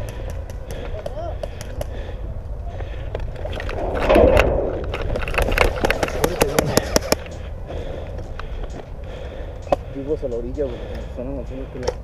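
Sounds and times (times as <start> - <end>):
wind rumble on microphone: 2.2 - 7.2
sharp clicks and knocks: 3.4 - 7.4.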